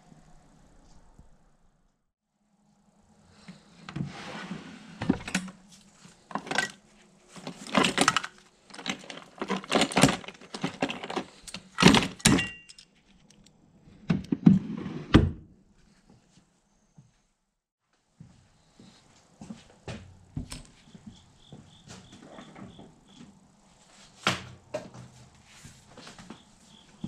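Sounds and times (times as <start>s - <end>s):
metal tools clattering: 6.3s - 13.3s.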